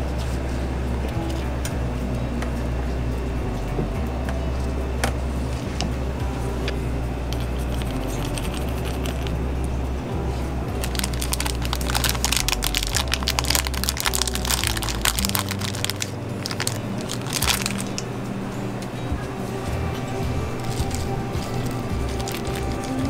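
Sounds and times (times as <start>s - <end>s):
small hard toppings dropping clicking: 7.3s - 9.4s, 10.8s - 18.1s, 20.6s - 23.0s.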